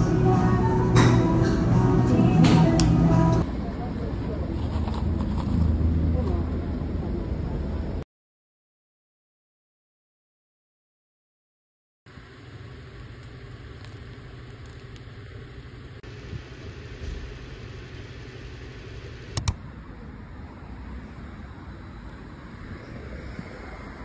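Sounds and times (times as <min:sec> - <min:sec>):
sharp clicks: 0:19.4 - 0:19.6.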